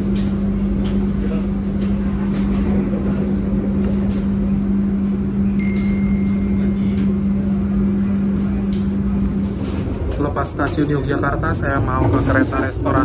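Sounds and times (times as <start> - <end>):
train hum and rumble: 0.0 - 13.0
thin high tone: 5.6 - 7.0.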